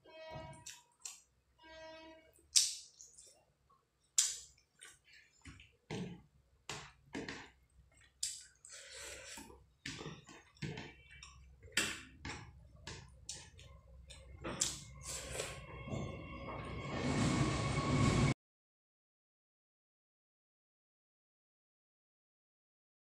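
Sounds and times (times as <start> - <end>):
wet chewing smacks: 4.2 - 5.7.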